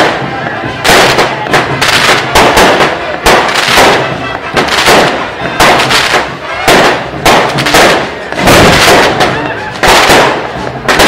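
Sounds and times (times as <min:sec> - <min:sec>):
fireworks bangs: 0:00.0 - 0:11.0.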